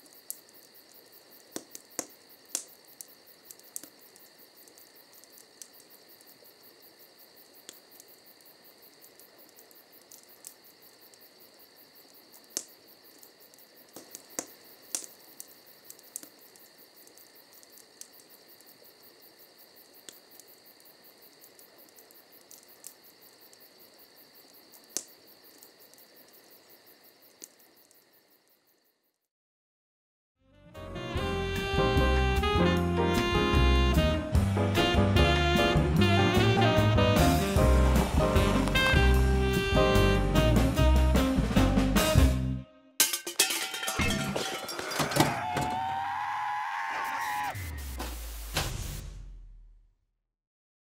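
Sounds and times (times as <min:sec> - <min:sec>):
fire crackling and popping: 0:00.0 - 0:19.2, 0:19.8 - 0:26.6, 0:36.6 - 0:39.6
crickets chirping: 0:00.0 - 0:29.3.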